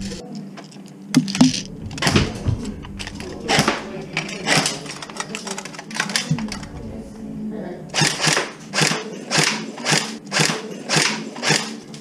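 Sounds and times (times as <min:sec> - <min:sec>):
low voices: 0:00.0 - 0:12.0
rifle handling clicks and knocks: 0:02.8 - 0:06.7.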